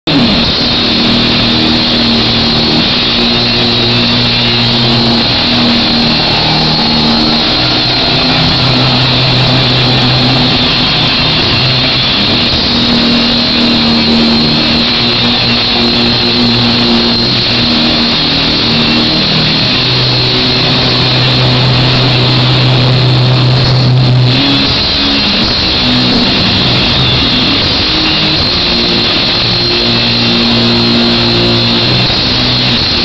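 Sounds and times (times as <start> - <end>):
distorted live punk music: 0.1 - 33.0.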